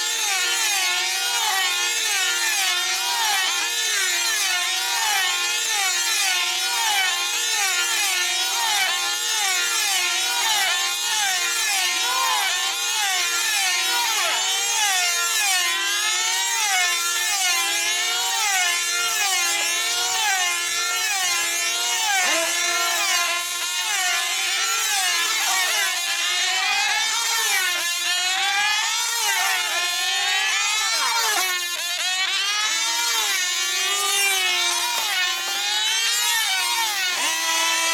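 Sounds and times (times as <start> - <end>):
model aircraft engines whining: 11.3 - 37.9.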